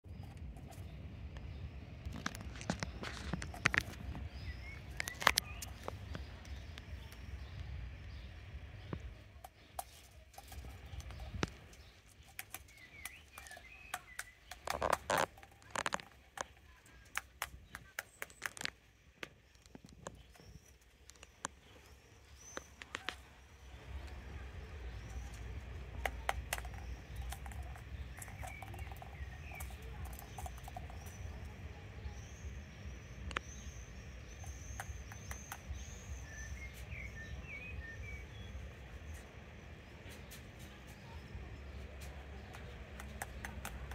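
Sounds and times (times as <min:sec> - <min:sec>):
small birds chirping: 0:00.0 - 0:43.9
crow pecking a plastic ball: 0:00.1 - 0:37.1, 0:40.1 - 0:43.9
low rumble: 0:21.3 - 0:42.9.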